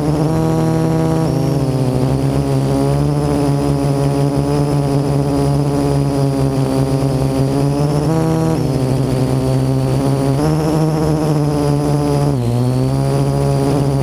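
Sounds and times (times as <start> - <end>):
drone propellers buzzing: 0.0 - 14.0.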